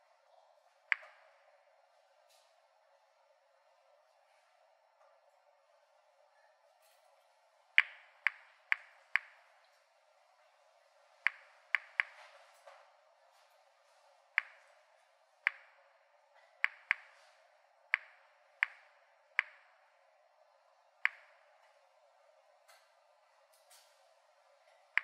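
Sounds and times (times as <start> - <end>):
geiger counter clicking: 0.9 - 1.4, 7.8 - 9.6, 11.2 - 12.2, 14.4 - 14.7, 15.4 - 16.0, 16.6 - 17.2, 17.9 - 19.8, 21.0 - 21.5.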